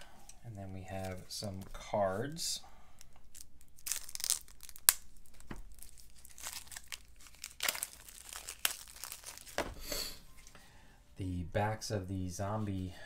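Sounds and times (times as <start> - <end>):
plastic wrap crinkling and tearing: 3.0 - 9.8.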